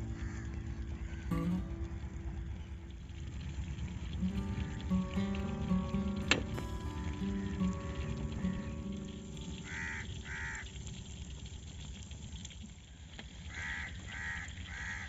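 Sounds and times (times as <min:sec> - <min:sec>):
crow cawing: 0:00.0 - 0:01.4, 0:07.1 - 0:10.9, 0:13.5 - 0:15.0.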